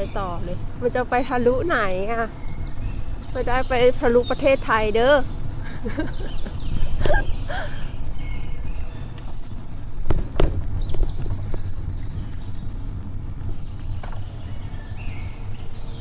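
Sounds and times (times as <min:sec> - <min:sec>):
bicycle tyres on asphalt: 0:00.0 - 0:16.0
birds chirping: 0:00.0 - 0:16.0
wind on microphone: 0:00.0 - 0:16.0
sharp knocks: 0:10.1 - 0:11.4.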